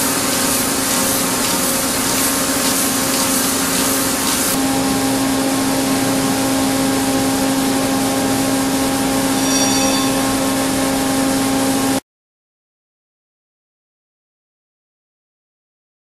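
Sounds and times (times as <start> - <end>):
boring mill machine hum: 0.0 - 12.0
faint high ringing: 9.2 - 11.3.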